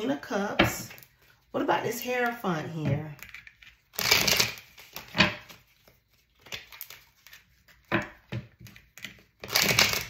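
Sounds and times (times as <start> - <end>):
cards snapping and rustling: 3.2 - 7.9, 8.6 - 10.0.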